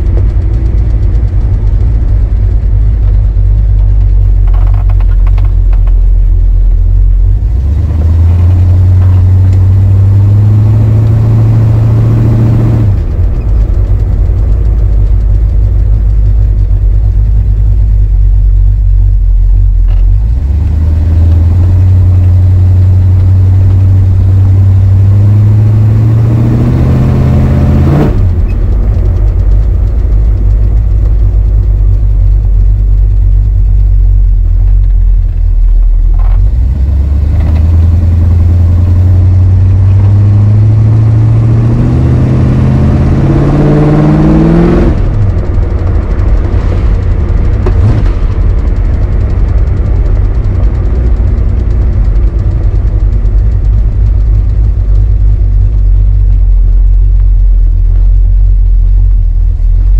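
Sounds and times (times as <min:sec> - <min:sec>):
car engine revving: 0:00.0 - 0:59.9.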